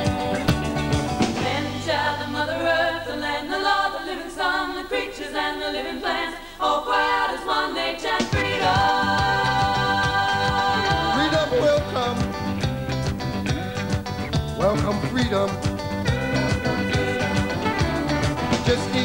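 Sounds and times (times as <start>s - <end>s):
full band playing: 0.0s - 1.9s, 10.5s - 19.0s
women's vocal harmonies: 1.3s - 11.9s.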